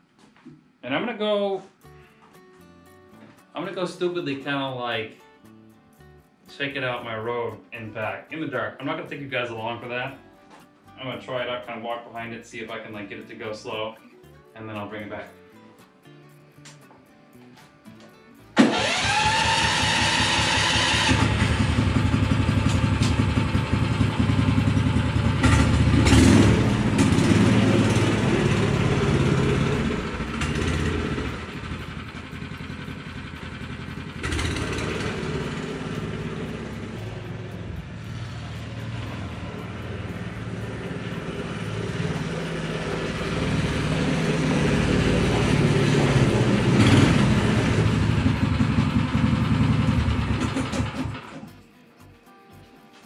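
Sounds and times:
snow machine engine running: 18.6 - 51.5.

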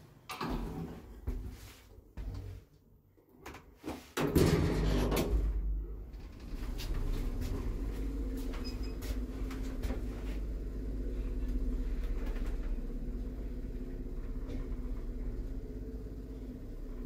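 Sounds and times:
elevator doors shutting: 4.2 - 17.0
elevator motor hum: 5.3 - 17.0.

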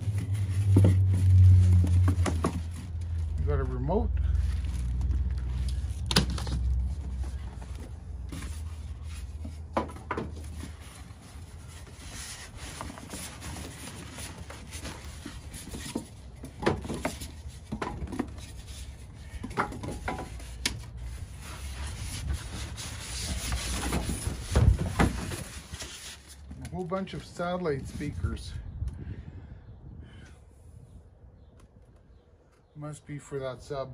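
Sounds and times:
cardboard and foam scraping: 0.0 - 3.4, 4.4 - 19.3, 20.2 - 26.6.

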